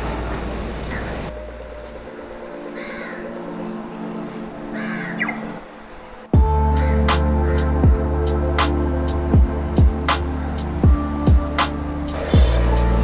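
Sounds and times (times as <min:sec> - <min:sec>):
crowd noise: 0:00.0 - 0:01.4
music: 0:00.0 - 0:13.0
street background noise: 0:00.0 - 0:13.0
crow cawing: 0:02.7 - 0:03.6, 0:04.7 - 0:05.6, 0:06.6 - 0:07.9.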